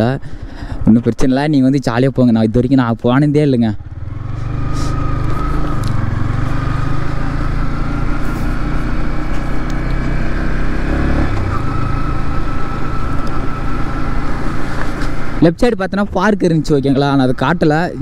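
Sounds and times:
motorcycle engine running: 3.8s - 15.5s.

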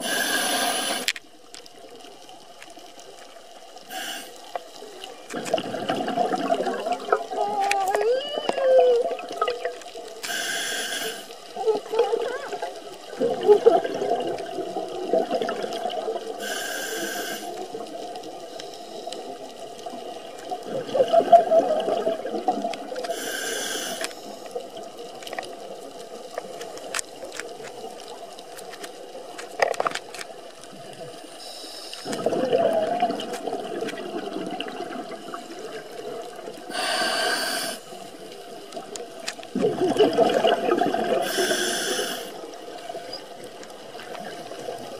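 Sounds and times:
diver inhaling through regulator: 0.0s - 1.1s, 3.9s - 4.4s, 10.2s - 11.3s, 16.4s - 17.6s, 23.1s - 24.4s, 36.7s - 38.0s, 41.2s - 42.4s
bubbling rush of exhaled air: 5.4s - 7.4s, 20.6s - 24.0s, 32.0s - 35.9s, 39.5s - 42.5s.

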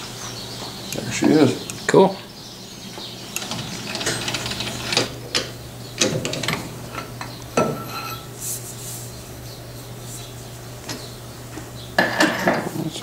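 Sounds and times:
steady low hum: 0.0s - 13.0s
metal rubbing: 7.8s - 9.2s.

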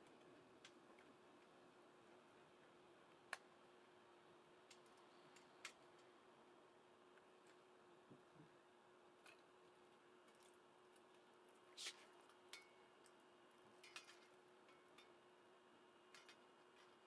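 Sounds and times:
faint steady hum: 0.0s - 17.0s
faint clicks and rustles: 16.0s - 17.0s.

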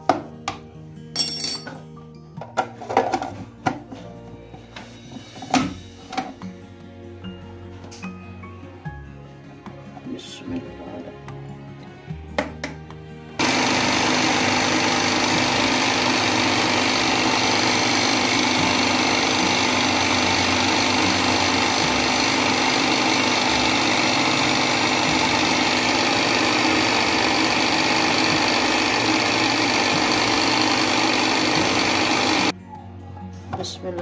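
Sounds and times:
food processor motor running: 13.4s - 32.5s.

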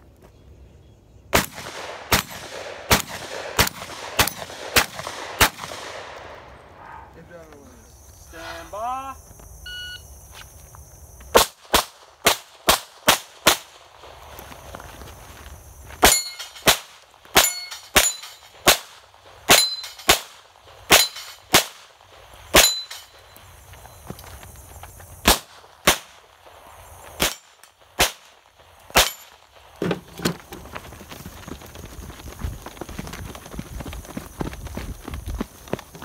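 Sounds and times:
running footsteps: 13.8s - 36.0s
steel targets ringing: 16.0s - 16.7s, 17.4s - 18.6s, 19.5s - 20.1s, 20.9s - 21.5s, 22.6s - 23.3s.

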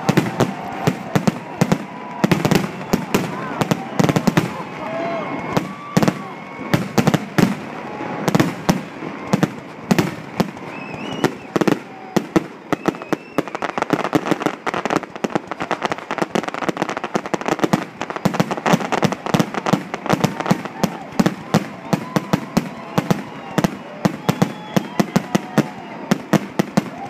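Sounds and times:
firework crackles: 0.0s - 27.0s
firework shells bursting: 5.4s - 13.5s.

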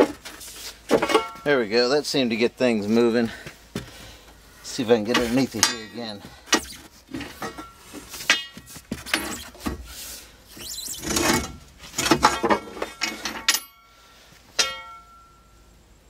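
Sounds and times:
metal grinding scrape: 9.0s - 13.7s
metal knocks and clinks: 12.0s - 13.9s, 14.6s - 15.5s.

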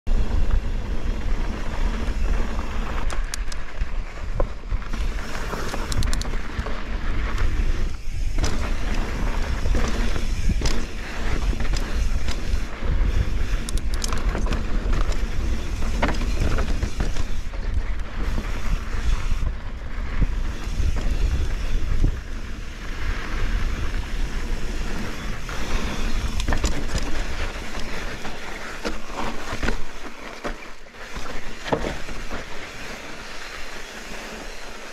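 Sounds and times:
wind rumble on microphone: 0.1s - 33.8s
bike rattling and knocking: 0.1s - 34.9s
tyres grinding over dirt and rock: 0.2s - 34.9s.

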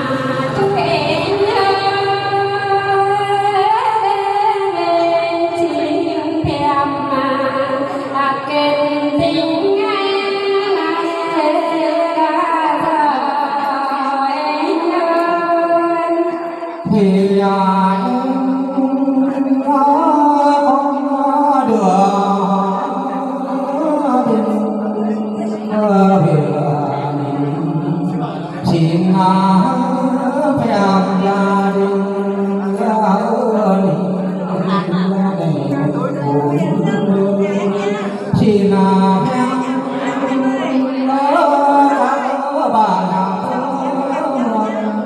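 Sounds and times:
woman singing: 0.0s - 17.0s
man singing: 16.3s - 45.0s.

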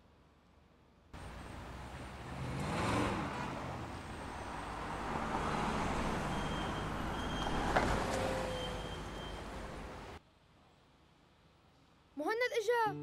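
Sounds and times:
car engine passing: 1.2s - 10.2s
street traffic noise: 1.2s - 10.2s.

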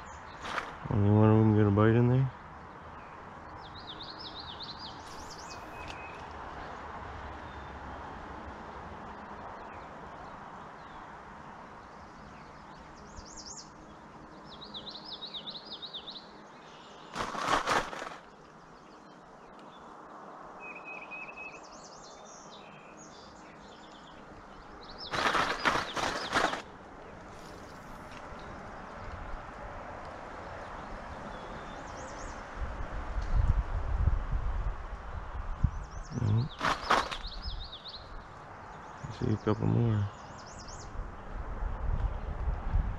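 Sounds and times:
songbirds singing: 0.0s - 33.5s, 35.3s - 42.6s
harsh burst of rapid clicks: 17.1s - 18.3s, 25.1s - 26.7s.

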